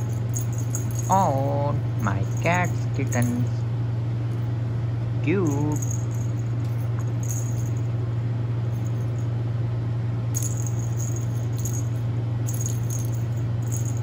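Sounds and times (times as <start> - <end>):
bell ball jingling: 0.0 - 3.6, 5.5 - 7.9, 8.7 - 9.3, 10.4 - 14.0
steady low hum: 0.0 - 14.0.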